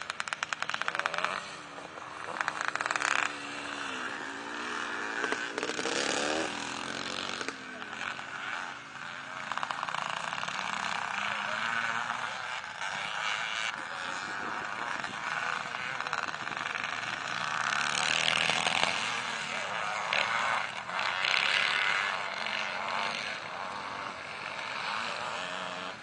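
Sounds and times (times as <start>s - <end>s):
distant motocross bikes revving: 0.0s - 26.0s.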